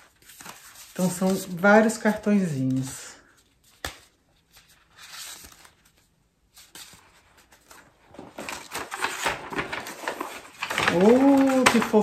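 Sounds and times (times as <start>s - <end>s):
paper cards rustling: 0.0s - 12.0s
packaging being handled: 2.6s - 12.0s.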